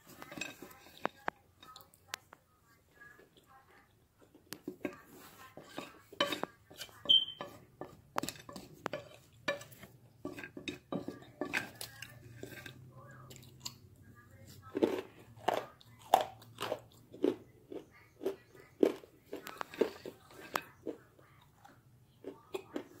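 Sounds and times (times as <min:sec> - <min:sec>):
spoon scraping crushed clay: 0:04.5 - 0:17.3.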